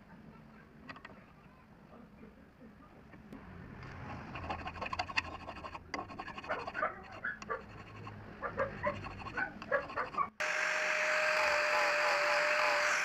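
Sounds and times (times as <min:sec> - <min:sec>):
hand file rasping on metal: 0:04.1 - 0:10.4.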